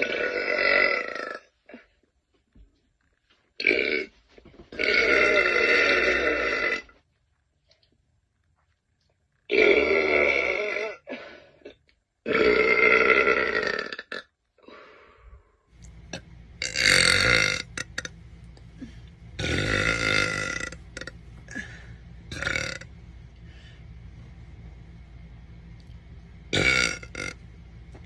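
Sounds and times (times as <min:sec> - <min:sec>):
woman burping: 0:09.5 - 0:14.3, 0:18.8 - 0:22.9, 0:26.5 - 0:27.4
low steady hum: 0:14.9 - 0:28.0.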